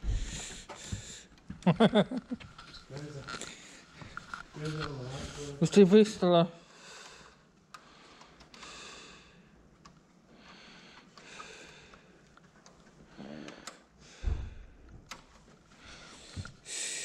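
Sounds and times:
breathing and sniffing: 0.0 - 1.4, 15.8 - 17.0.

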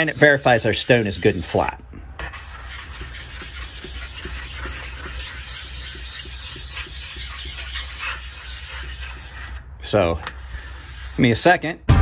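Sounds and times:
stone scraping on wet whetstone: 0.0 - 1.6, 2.2 - 9.6, 10.2 - 11.4.

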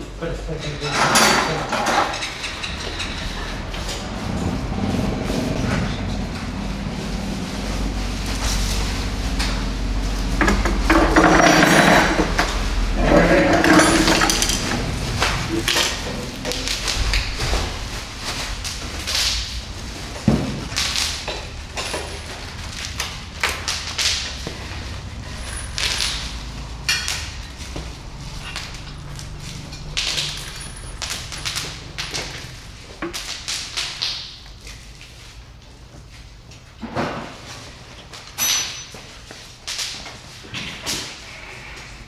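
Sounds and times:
steady low hum: 0.0 - 36.8
motorcycle parts rubbing and knocking: 0.5 - 39.5
rustling swishes: 14.0 - 32.8
metallic clink: 38.4 - 39.0.

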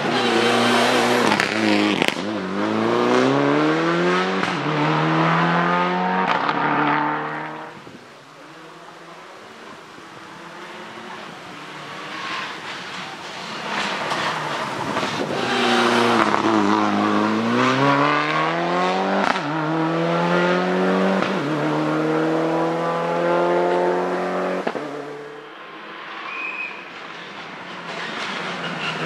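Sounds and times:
race car engine revving: 0.0 - 25.4.

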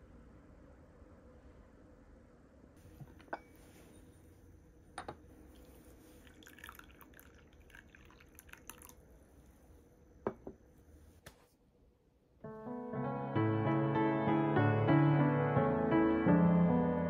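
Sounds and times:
liquid trickling into a cup: 5.5 - 9.1.

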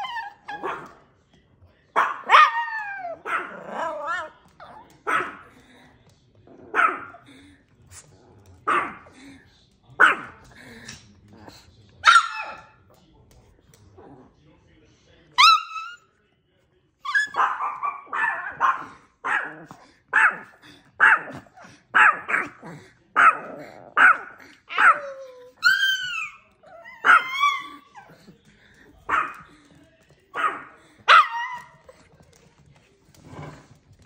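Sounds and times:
small dogs barking: 0.0 - 1.0, 1.9 - 5.6, 6.6 - 7.3, 8.6 - 9.2, 10.0 - 10.6, 12.0 - 12.8, 15.4 - 16.0, 17.1 - 28.3, 29.0 - 29.5, 30.3 - 32.0
dog yelping: 15.4 - 16.0, 24.7 - 28.1, 31.1 - 31.7.

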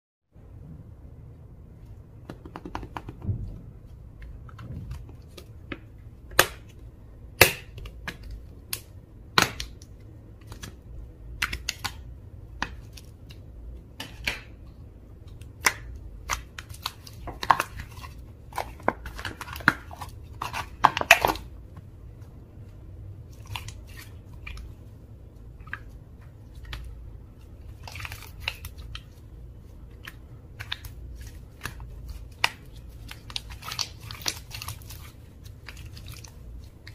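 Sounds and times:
sticky slime pops and crackles: 4.6 - 6.8, 7.4 - 13.4, 15.3 - 17.9.

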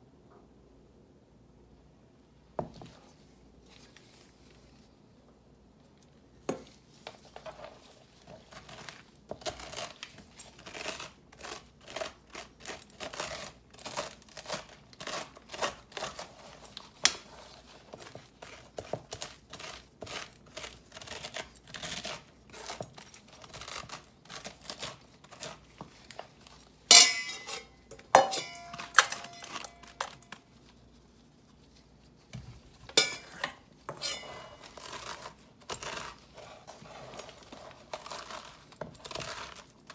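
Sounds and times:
spoon scraping squash: 6.6 - 39.9
spoon clanking against metal bowl: 26.9 - 30.3.

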